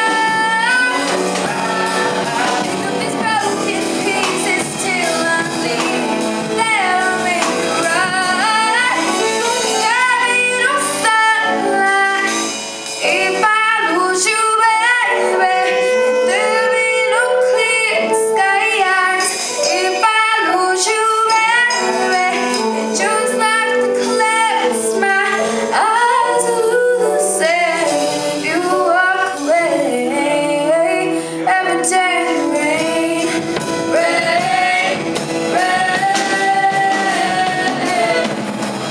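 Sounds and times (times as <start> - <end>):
backing singers: 0.0 - 11.4, 20.4 - 38.9
woman singing pop ballad: 0.0 - 38.5
live band playing: 0.0 - 38.9.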